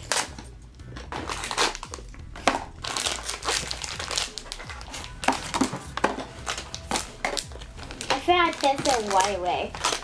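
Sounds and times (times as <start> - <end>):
foil bag crinkling: 2.8 - 10.0.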